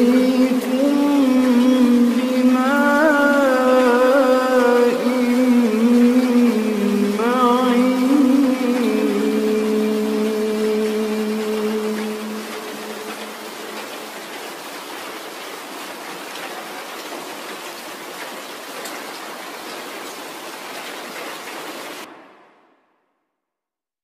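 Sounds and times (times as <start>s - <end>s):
heavy rainfall hiss: 0.0s - 22.5s.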